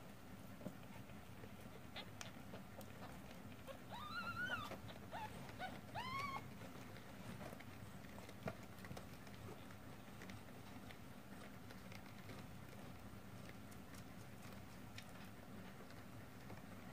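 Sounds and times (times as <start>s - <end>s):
kittens mewing: 3.0s - 6.6s.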